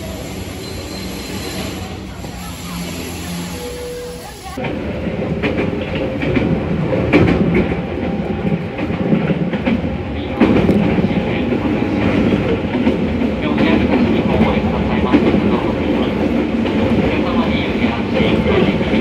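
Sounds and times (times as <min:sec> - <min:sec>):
train wheels rumbling on rails: 0:00.0 - 0:19.0
clickety-clack over rail joints: 0:04.6 - 0:19.0.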